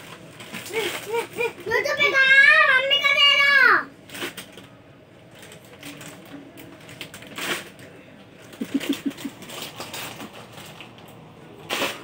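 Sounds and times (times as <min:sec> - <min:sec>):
plastic snack packet crinkling: 0:05.3 - 0:12.0.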